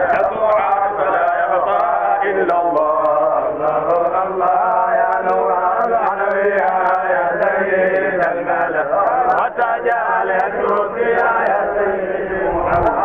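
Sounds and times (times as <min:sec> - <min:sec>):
men chanting together: 0:00.0 - 0:13.0.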